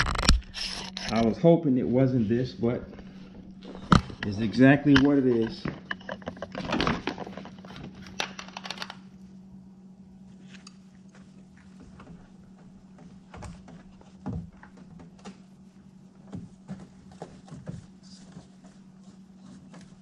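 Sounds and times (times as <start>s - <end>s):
steady low hum: 0.0s - 20.0s
camera handling clicks and rustles: 4.9s - 9.0s.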